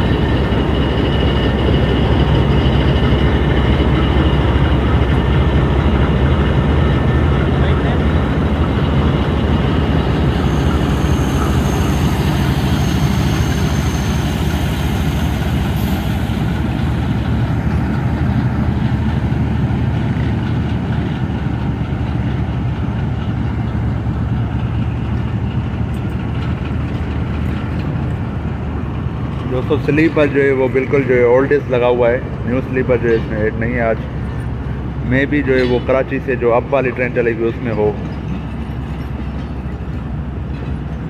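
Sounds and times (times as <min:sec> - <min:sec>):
diesel engine drone: 0:00.0 - 0:41.0
train coaches rumbling on rails: 0:00.0 - 0:41.0.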